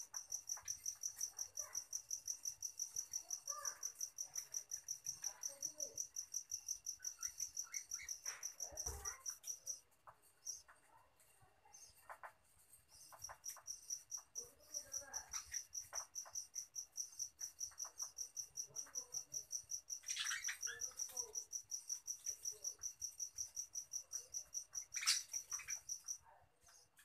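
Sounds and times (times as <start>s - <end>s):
cricket chirping: 0.0s - 10.8s, 11.7s - 27.0s
budgerigars chattering: 20.0s - 21.0s, 24.8s - 26.0s.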